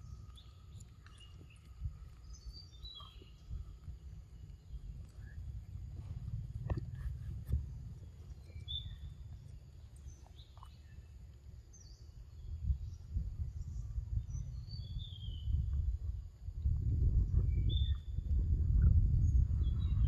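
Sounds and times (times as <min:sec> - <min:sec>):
bird chirps: 0:00.0 - 0:11.1
wind on microphone: 0:00.0 - 0:20.0.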